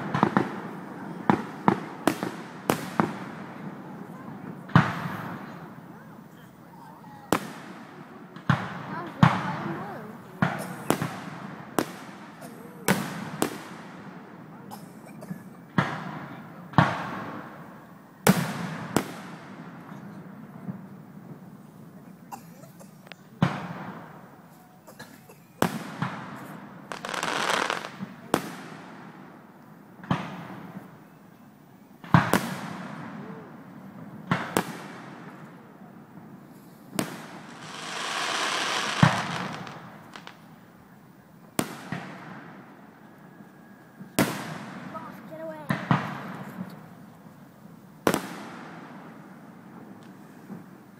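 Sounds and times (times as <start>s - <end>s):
firework hiss: 26.9s - 28.0s, 37.0s - 40.4s
firework shells bursting: 37.0s - 40.5s.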